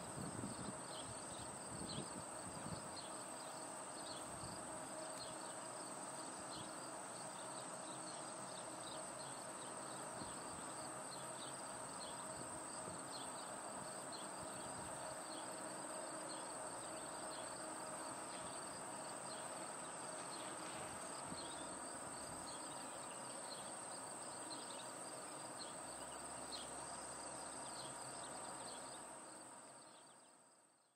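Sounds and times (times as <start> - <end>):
insect chirps: 0.0 - 30.9
insect drone: 0.0 - 30.9.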